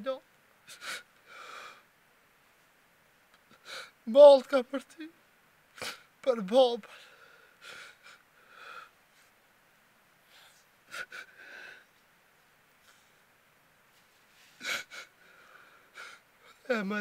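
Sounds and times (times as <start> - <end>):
man sobbing and sniffing: 5.7 - 6.2, 6.9 - 9.4, 10.3 - 11.9, 14.4 - 16.8.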